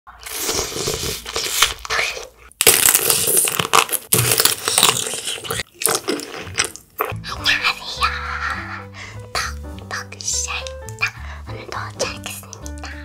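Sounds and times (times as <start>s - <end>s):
crunching candy-coated fruit: 0.1s - 7.3s.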